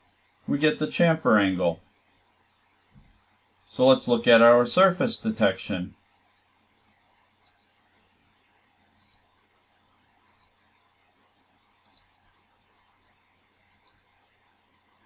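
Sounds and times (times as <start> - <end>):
computer mouse clicks: 7.2 - 7.7, 8.9 - 9.4, 10.2 - 10.7, 11.8 - 12.3, 13.6 - 14.2.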